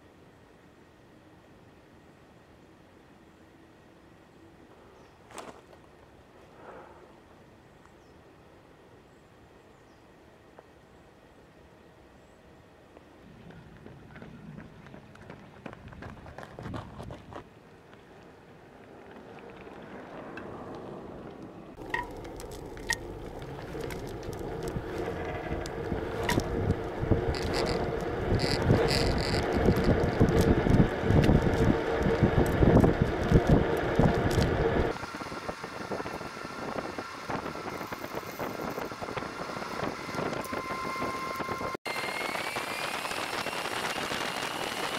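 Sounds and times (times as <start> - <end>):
scooter wheels rolling on road: 13.3 - 42.2, 42.8 - 44.9
steady hum: 21.6 - 44.9
wind on microphone: 21.8 - 44.9.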